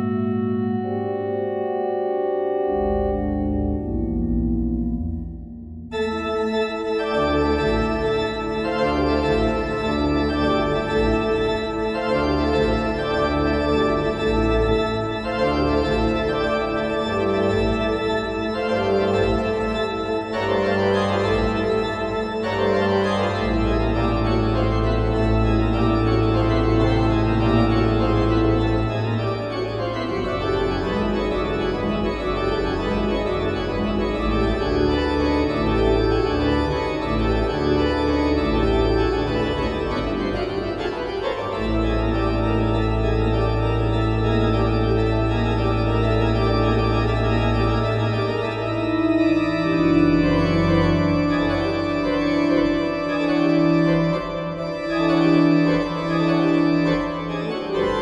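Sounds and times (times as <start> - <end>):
low organ pedal note: 0.0 - 58.0
pipe organ playing fast chords: 0.0 - 58.0.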